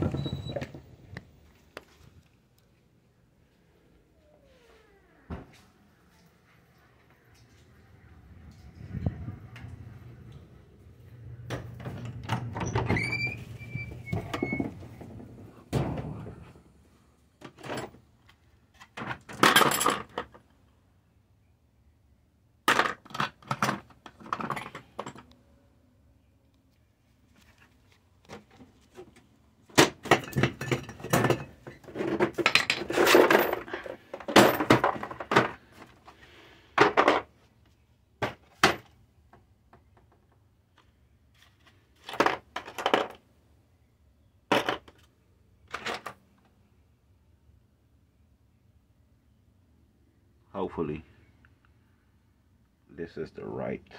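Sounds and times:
metal tools clinking and rattling: 0:30.0 - 0:35.5.

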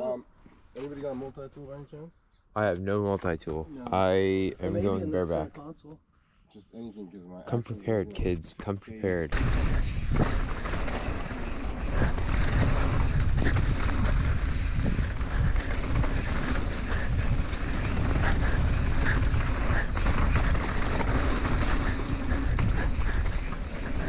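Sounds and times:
bike tyres rolling over dirt: 0:09.3 - 0:24.0
wind rumbling on microphone: 0:09.3 - 0:24.0.

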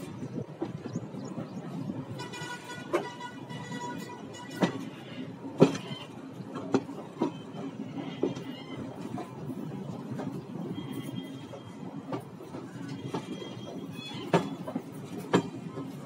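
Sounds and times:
train rumbling: 0:00.0 - 0:16.0
train wheel clunks: 0:00.0 - 0:16.0
train horn: 0:02.1 - 0:05.3, 0:10.6 - 0:11.8.

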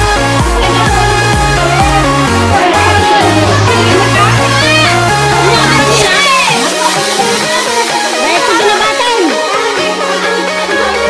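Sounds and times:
held bass notes: 0:00.0 - 0:07.9
synth melody: 0:00.0 - 0:11.0.

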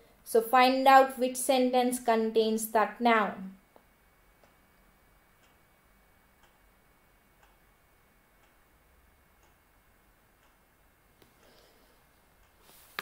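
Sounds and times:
clock ticking: 0:04.3 - 0:11.6, 0:12.4 - 0:12.6.

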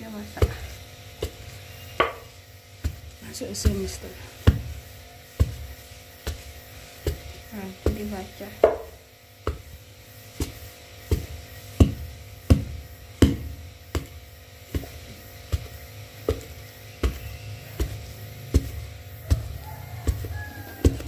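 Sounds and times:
pestle pounding in mortar: 0:00.1 - 0:21.0.

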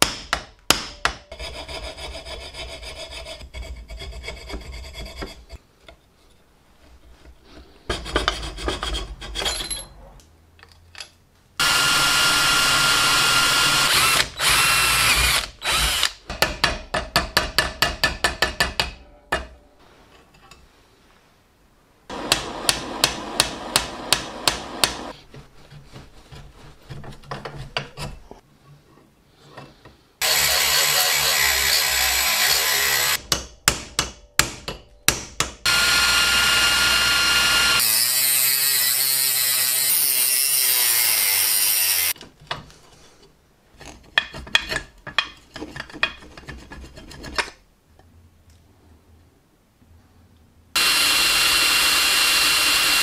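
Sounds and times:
electric drilling: 0:11.6 - 0:16.2, 0:30.2 - 0:33.2, 0:35.7 - 0:42.1, 0:50.8 - 0:53.0
hammer striking metal: 0:33.2 - 0:35.7.

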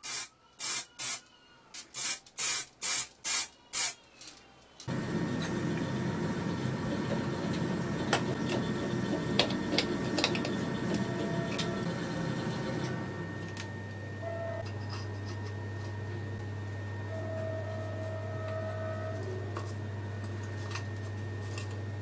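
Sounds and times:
steady low hum: 0:04.9 - 0:22.0.

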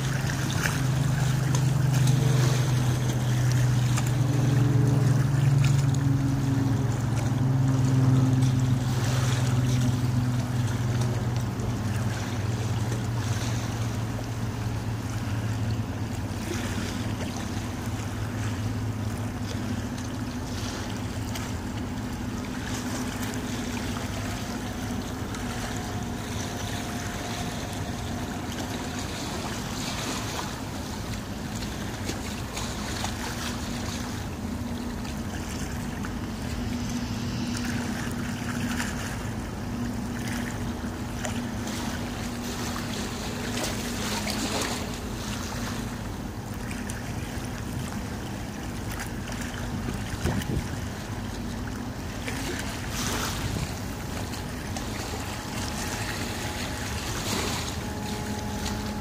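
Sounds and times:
ship engines humming: 0:00.0 - 0:59.0
wind buffeting microphone: 0:50.1 - 0:50.9.

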